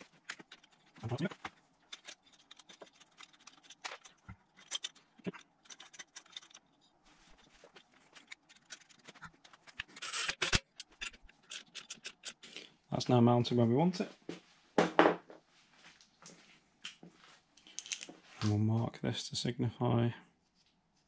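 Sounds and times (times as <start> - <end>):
metal parts clicking and knocking: 0.0 - 12.5, 17.6 - 18.1.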